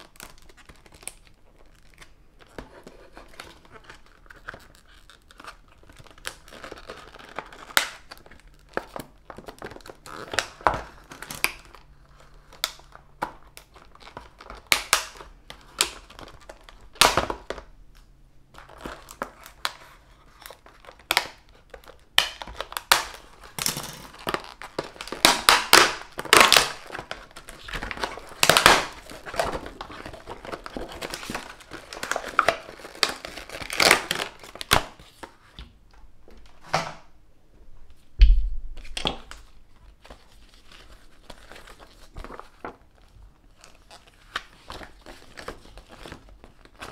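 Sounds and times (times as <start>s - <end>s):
plastic crackling and snapping: 0.0s - 37.0s, 38.2s - 46.9s
loud thump: 38.2s - 38.8s.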